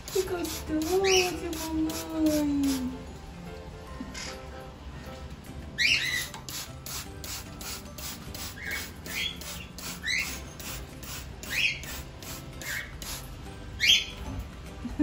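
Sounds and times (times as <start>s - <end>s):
spray bottle squirting water: 0.0s - 2.9s, 6.1s - 13.4s
parrot chirping calls: 5.8s - 6.4s, 8.5s - 10.5s, 11.4s - 12.0s, 13.8s - 14.2s.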